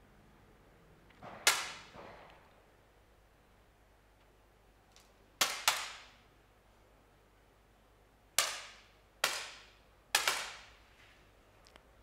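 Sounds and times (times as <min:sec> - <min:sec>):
echo of a range hall: 0:00.0 - 0:03.6, 0:08.2 - 0:12.0
air pistol shots cracking: 0:01.2 - 0:02.4, 0:08.4 - 0:10.7.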